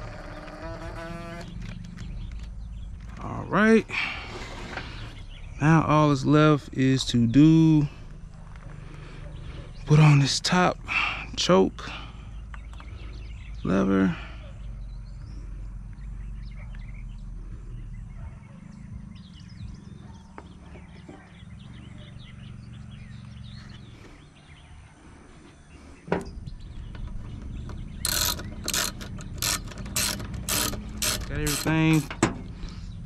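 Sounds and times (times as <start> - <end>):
steady low rumble: 1.4 - 33.0
ratchet wrench clicking: 28.0 - 32.2.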